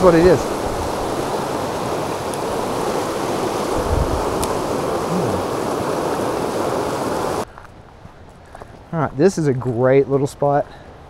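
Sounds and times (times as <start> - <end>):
creek rushing over rocks: 0.0 - 7.5.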